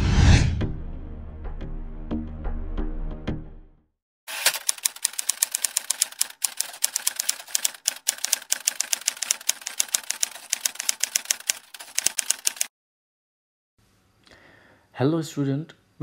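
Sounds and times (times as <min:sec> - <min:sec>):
typewriter key clicks: 0:04.3 - 0:12.7.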